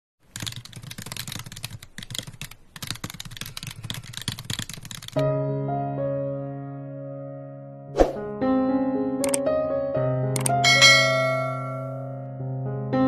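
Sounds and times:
keyboard typing clicks: 0:00.3 - 0:05.2, 0:10.4 - 0:10.6
held music chord: 0:10.6 - 0:12.2.

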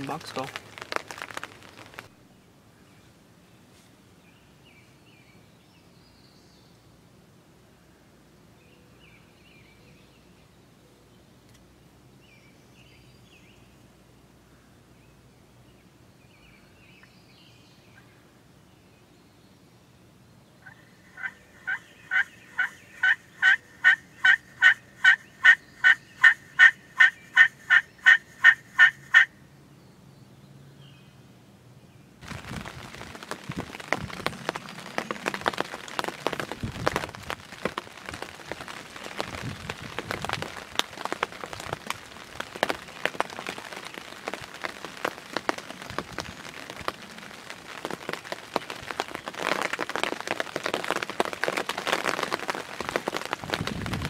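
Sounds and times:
dense crackling patter: 0:00.0 - 0:02.2, 0:32.2 - 0:54.0
wild turkey yelps: 0:20.6 - 0:29.3.

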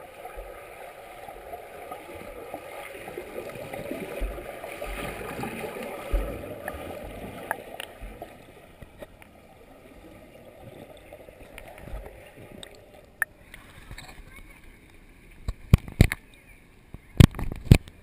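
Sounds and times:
underwater swimming churning: 0:00.0 - 0:13.8
low underwater thumps: 0:03.2 - 0:09.3.

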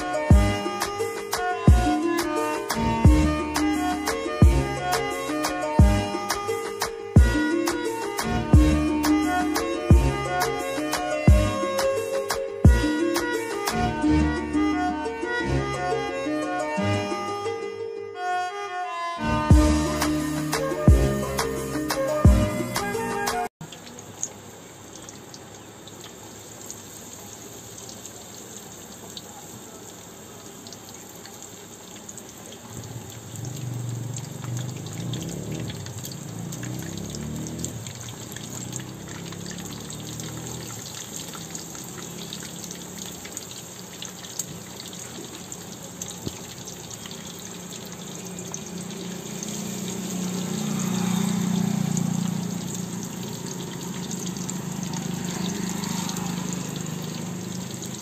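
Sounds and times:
chicken deep-frying in oil: 0:23.6 - 0:58.0.

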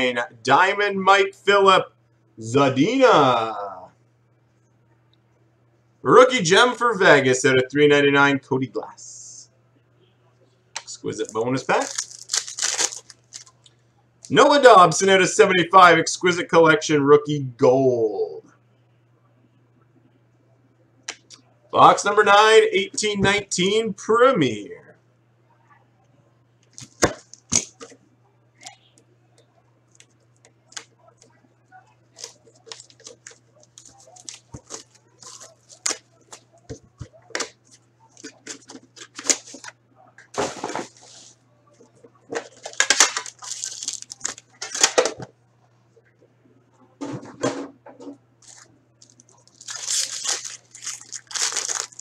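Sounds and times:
crinkling plastic: 0:10.8 - 0:14.4, 0:32.1 - 0:39.7, 0:40.6 - 0:45.0, 0:48.4 - 0:52.0
wrapper tearing: 0:11.2 - 0:14.4, 0:32.2 - 0:36.4, 0:42.5 - 0:44.9, 0:48.4 - 0:52.0
shrink wrap being slit and pulled: 0:11.8 - 0:13.5, 0:49.5 - 0:52.0.

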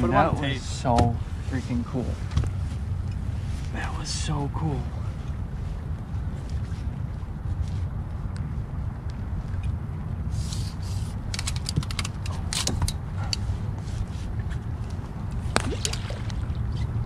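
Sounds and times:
steady low rumble: 0:00.0 - 0:17.0
fishing gear clicking and rattling: 0:11.2 - 0:13.4.

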